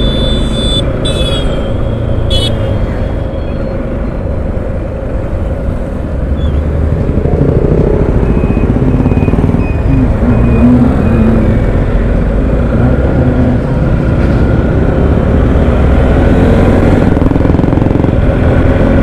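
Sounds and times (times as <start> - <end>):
city traffic: 0.0 - 19.0
wind and road rumble: 0.0 - 19.0
motorcycle engine running: 6.5 - 13.7.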